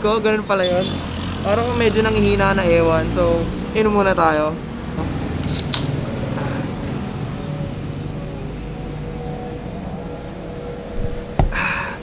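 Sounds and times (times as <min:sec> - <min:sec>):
street traffic hum: 0:00.0 - 0:12.0
drink can opening hiss: 0:05.4 - 0:05.9.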